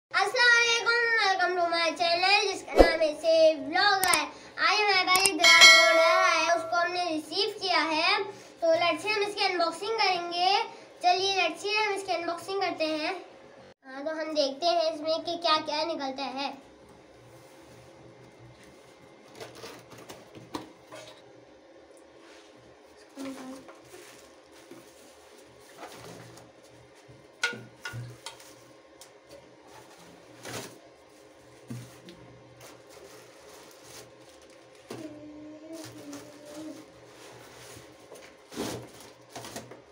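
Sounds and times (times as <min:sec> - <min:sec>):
child speaking sing-song: 0:01.7 - 0:07.5
bell-like chime: 0:05.4 - 0:06.8
plastic wrap crinkling: 0:32.6 - 0:34.9.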